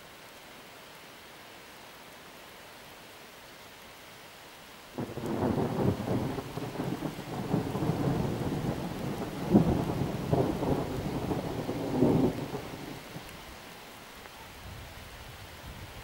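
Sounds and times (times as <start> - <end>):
rain falling: 0.0 - 16.0
thunder rolling: 5.0 - 13.2.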